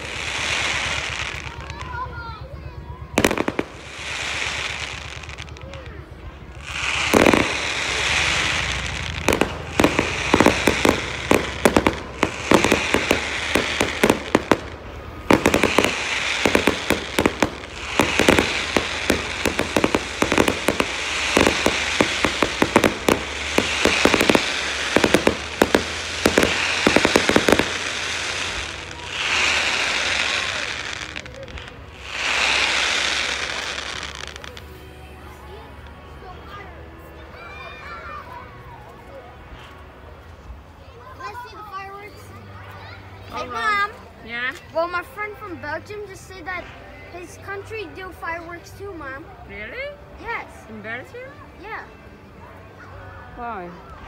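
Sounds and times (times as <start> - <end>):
fireworks hissing: 0.0 - 2.2, 3.1 - 34.7
fireworks bangs and crackling: 0.0 - 34.8.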